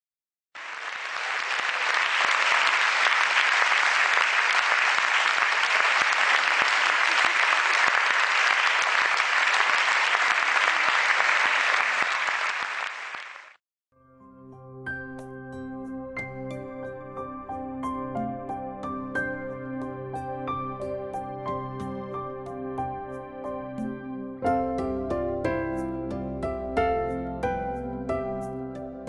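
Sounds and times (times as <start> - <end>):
crowd applauding: 0.6 - 13.6
soft music with held notes: 14.0 - 29.0.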